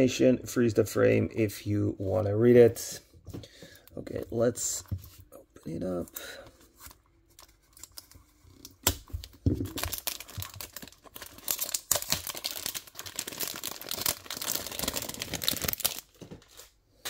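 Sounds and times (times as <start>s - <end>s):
packaging crinkling and tearing: 6.7s - 16.8s.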